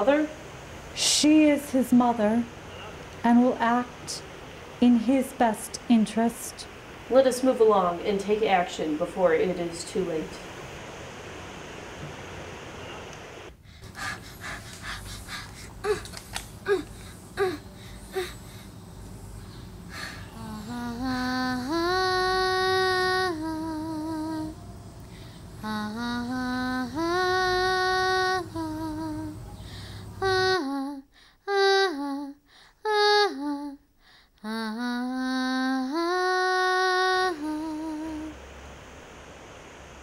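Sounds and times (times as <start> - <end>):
low steady hum: 0.0 - 40.0
woman singing: 20.0 - 29.6, 30.2 - 38.4.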